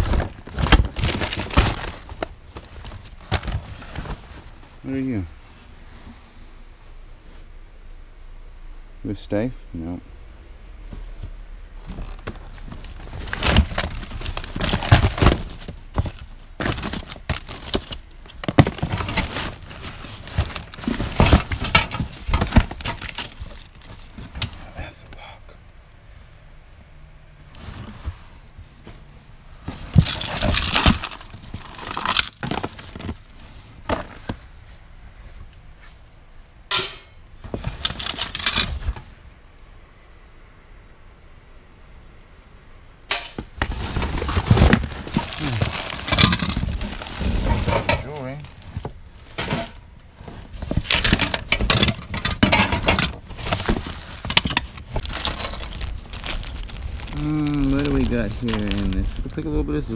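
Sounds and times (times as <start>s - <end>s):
hands rummaging through cardboard box: 0.0s - 5.0s, 11.2s - 24.7s, 27.6s - 34.9s, 37.4s - 39.1s, 43.4s - 59.4s
paper and plastic rustling: 0.0s - 5.3s, 11.0s - 24.6s, 27.5s - 36.1s, 37.4s - 39.3s, 43.4s - 59.9s
jewelry clinking in plastic bag: 12.0s - 24.4s, 29.9s - 33.7s, 37.6s - 38.8s, 43.8s - 48.8s, 49.4s - 59.4s
hard objects clicking and knocking: 50.6s - 57.1s.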